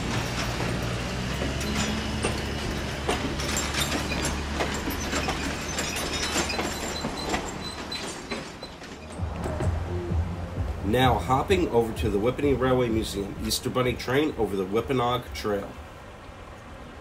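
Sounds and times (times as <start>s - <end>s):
wheels clicking and clanking: 0.0s - 9.9s
train rumbling: 0.0s - 17.0s.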